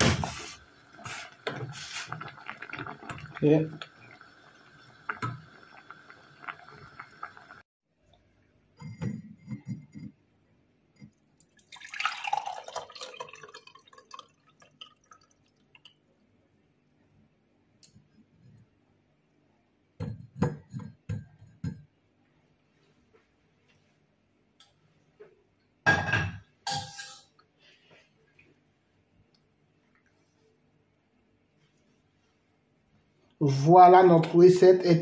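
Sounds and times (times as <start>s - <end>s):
liquid pouring into mug: 0.3s - 7.6s, 11.4s - 16.0s
metal clinking on glass: 26.7s - 27.3s.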